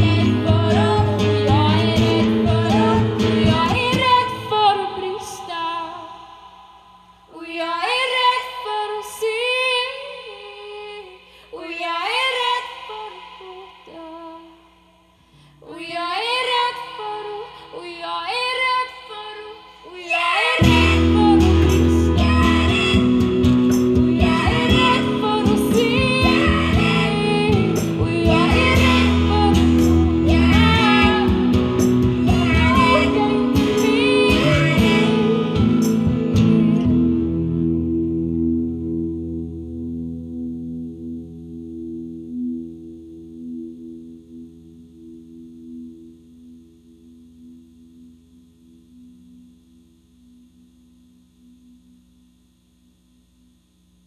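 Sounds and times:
women singing: 0.0s - 6.5s, 7.3s - 14.6s, 15.6s - 37.0s
electric and acoustic guitars: 0.0s - 6.8s, 20.1s - 46.1s.

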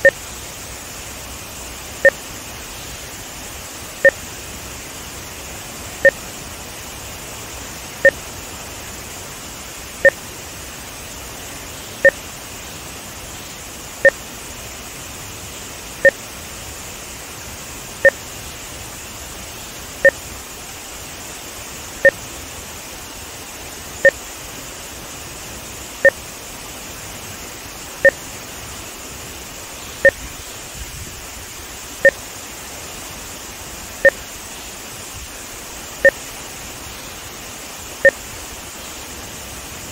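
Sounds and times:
water rushing over spillway: 0.0s - 39.9s.

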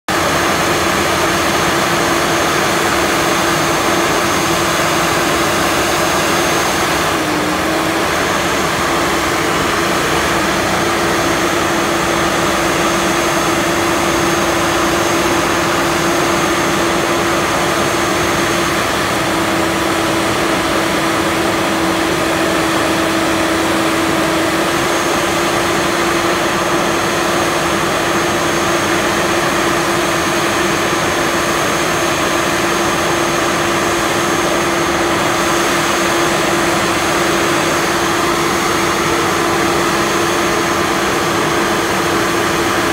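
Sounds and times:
steady machine whine: 0.1s - 42.9s
trencher machine drone: 0.1s - 42.9s.

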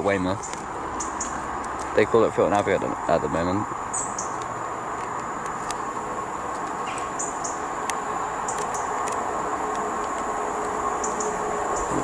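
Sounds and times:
birds chirping: 0.0s - 12.0s
diesel train engine hum: 0.0s - 12.0s
train wheels on rails: 7.8s - 12.0s.

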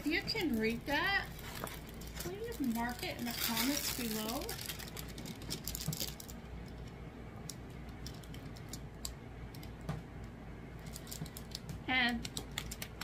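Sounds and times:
plastic film crinkling: 0.0s - 6.9s, 10.8s - 13.0s.

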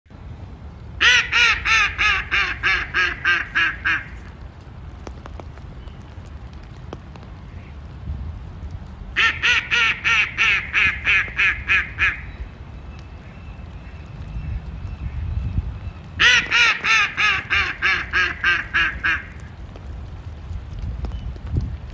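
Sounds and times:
duck quacking: 1.0s - 4.2s, 9.2s - 12.2s, 16.2s - 19.4s.

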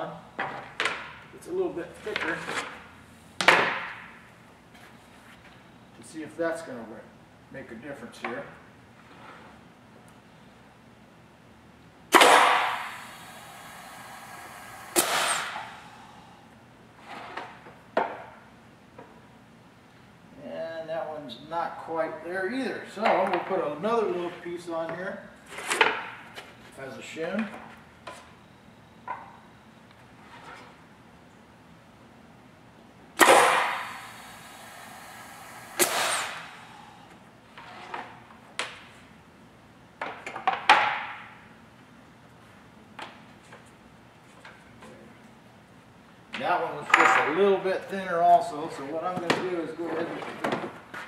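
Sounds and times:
pneumatic press air burst: 12.1s - 16.2s, 33.2s - 37.1s
faint air hiss: 12.1s - 16.8s, 33.2s - 37.4s.

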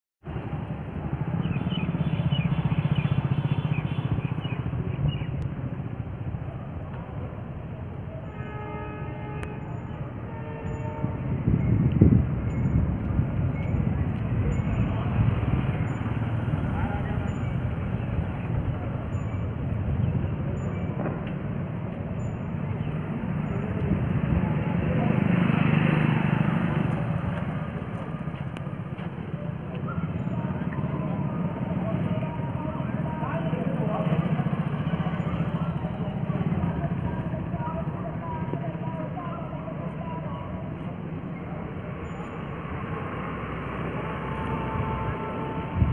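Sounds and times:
small birds chirping: 1.4s - 5.4s
pulsing low rumble: 44.6s - 45.9s.

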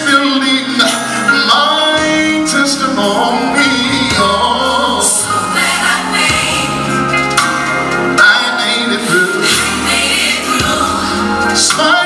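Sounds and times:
man singing gospel: 0.0s - 5.4s, 8.0s - 10.0s, 11.3s - 12.0s
instrumental accompaniment with bass: 0.0s - 12.0s.

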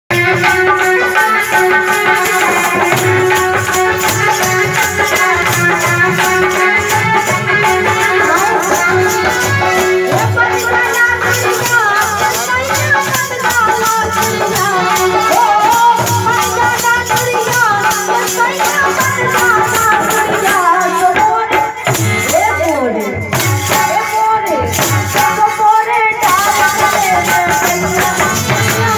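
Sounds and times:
person singing: 0.1s - 23.2s
harmonium playing: 0.1s - 28.9s
shaken rattle beat: 0.1s - 28.9s.

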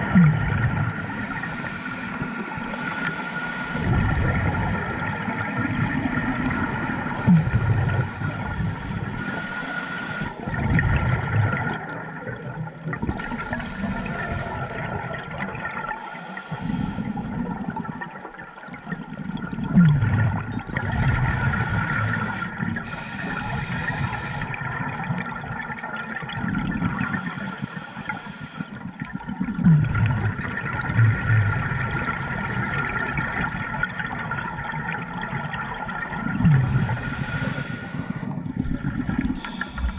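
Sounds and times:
bubbling gurgling exhale: 0.0s - 39.9s
hissing regulator inhale: 1.0s - 4.0s, 7.1s - 10.5s, 13.2s - 14.8s, 16.0s - 17.4s, 20.8s - 24.6s, 27.0s - 28.8s, 36.5s - 38.5s, 39.2s - 39.9s.

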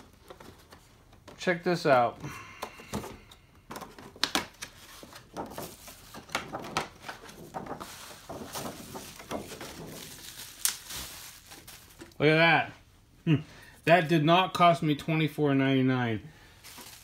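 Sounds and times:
plastic packaging crinkling: 3.9s - 12.2s, 16.5s - 17.0s.

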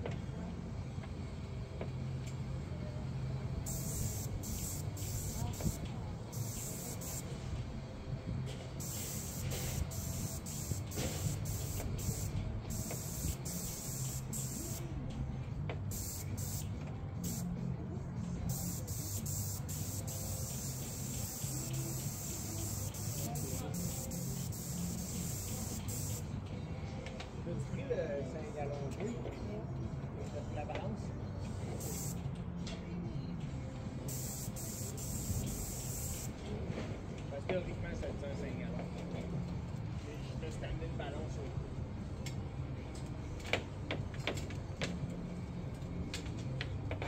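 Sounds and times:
steady low hum: 0.0s - 27.0s
paint spray gun hissing: 3.7s - 7.4s, 8.8s - 14.9s, 15.9s - 17.5s, 18.5s - 26.3s, 31.8s - 32.2s, 34.1s - 36.3s.

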